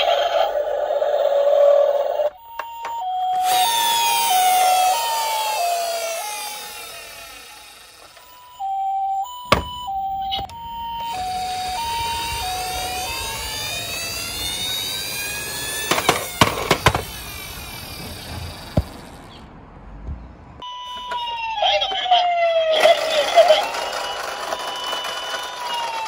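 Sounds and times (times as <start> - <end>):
toy ambulance siren: 0.0 - 19.1, 20.6 - 26.0
sharp clicks and knocks: 13.9 - 17.4.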